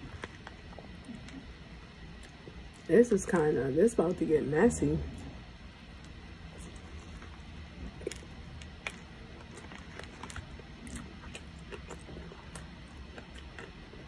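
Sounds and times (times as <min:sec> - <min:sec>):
person chewing: 0:00.0 - 0:02.9, 0:05.9 - 0:14.0
faint low hum: 0:00.0 - 0:14.0.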